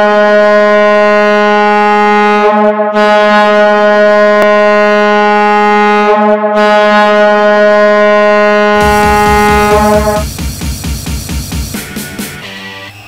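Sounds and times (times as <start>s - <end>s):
hockey goal horn blasts: 0.0s - 10.3s.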